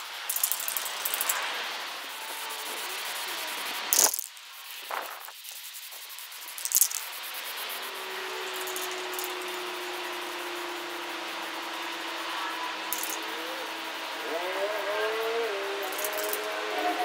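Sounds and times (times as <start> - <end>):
spray can hissing bursts: 0.0 - 9.6.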